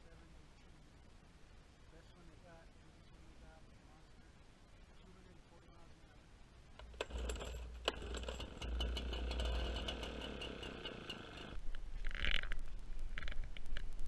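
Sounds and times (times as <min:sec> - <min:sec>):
leaf blower engine idling: 0:06.8 - 0:11.6.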